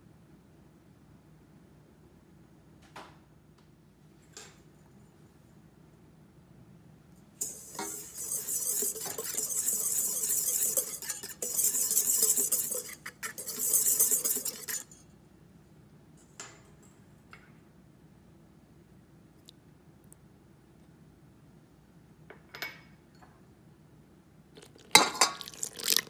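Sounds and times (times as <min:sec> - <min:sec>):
whisk scraping metal bowl: 0:07.4 - 0:15.0, 0:24.6 - 0:26.0.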